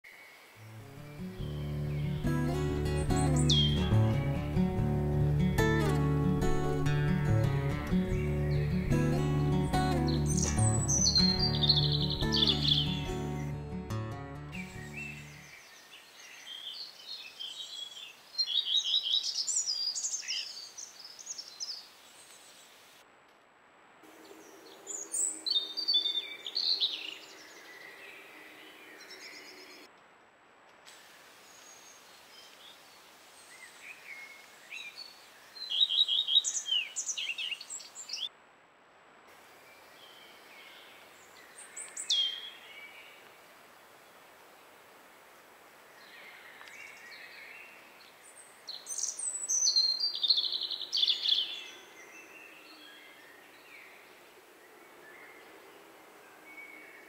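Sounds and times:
faint steady hiss: 0.0 - 57.0
songbirds chirping and trilling: 0.1 - 22.8, 24.1 - 29.9, 31.4 - 38.3, 39.6 - 43.4, 45.8 - 57.0
high falling bird call: 1.3 - 4.8, 5.5 - 15.4.

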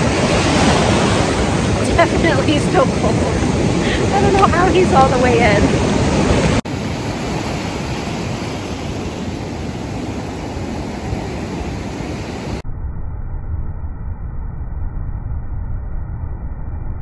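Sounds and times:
surf breaking on sand: 0.0 - 12.6.

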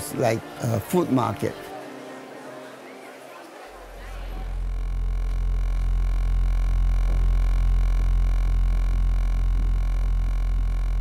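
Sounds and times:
low droning hum with throb: 3.8 - 11.0.

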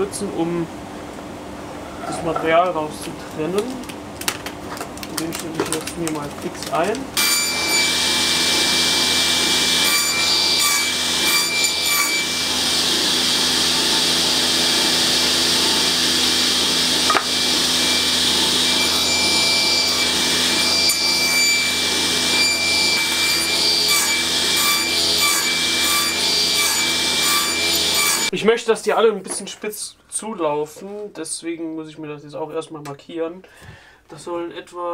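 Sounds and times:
saw cutting wood: 7.2 - 28.3
table saw blade whine: 7.2 - 28.3.

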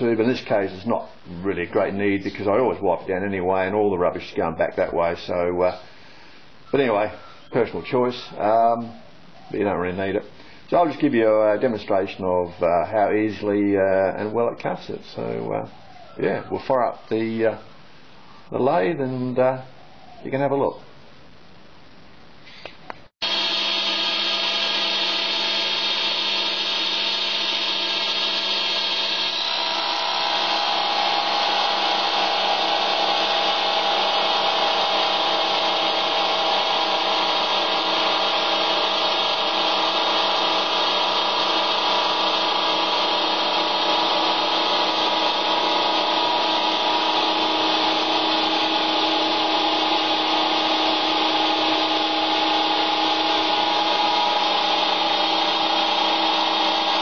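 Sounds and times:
lathe disc cutting steel: 23.2 - 57.0.

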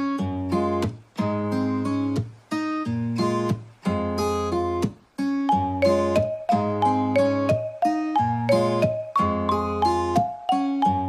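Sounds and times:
light instrumental tune: 5.2 - 11.0.

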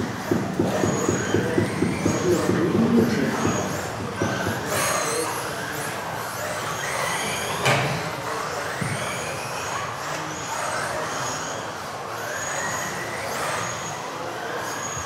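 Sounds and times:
electric motors whining: 0.0 - 15.0
sharp knock: 0.3 - 4.8.

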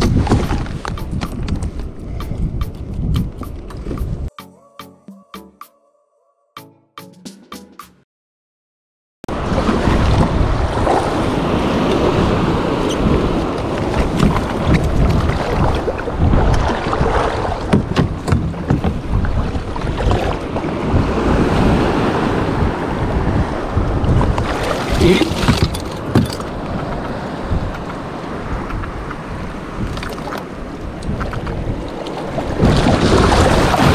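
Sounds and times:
wind buffeting microphone: 0.0 - 4.3, 9.3 - 33.9
small waves breaking: 9.3 - 33.9
water slapping kayak hull: 9.3 - 33.9
sharp splashes: 32.1 - 33.9.

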